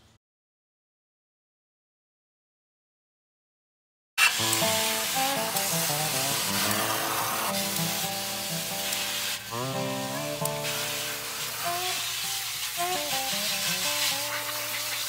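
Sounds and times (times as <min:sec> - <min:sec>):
hose spray hissing into water: 0:04.2 - 0:15.0
background music melody: 0:04.3 - 0:14.7.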